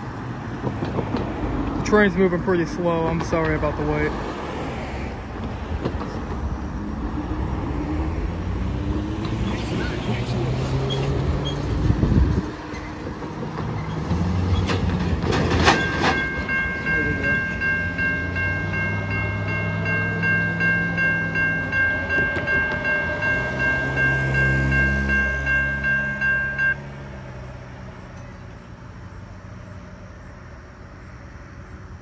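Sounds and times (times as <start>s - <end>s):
low rumble of road traffic: 0.0s - 32.0s
electronic crossing bell ringing: 15.6s - 27.0s.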